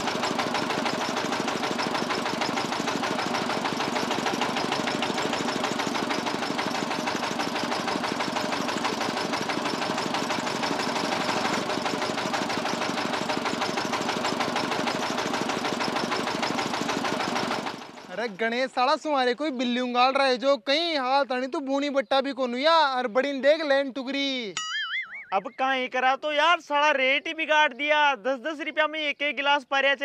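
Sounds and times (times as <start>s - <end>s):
engine chugging: 0.0s - 19.8s.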